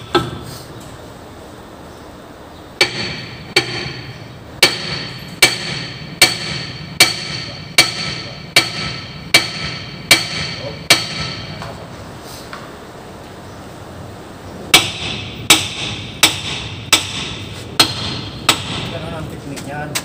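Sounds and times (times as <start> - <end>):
hammer striking steel: 0.0 - 0.5, 2.8 - 11.8, 14.7 - 19.2.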